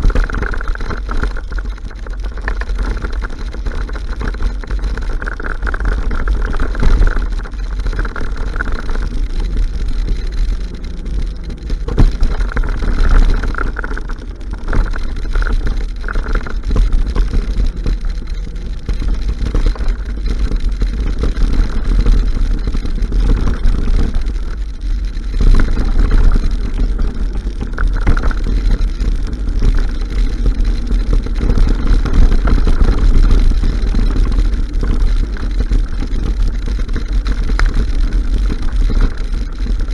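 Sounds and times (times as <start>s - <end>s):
mountain bike rattling on trail: 0.0s - 39.9s
wind buffeting microphone: 0.0s - 39.9s.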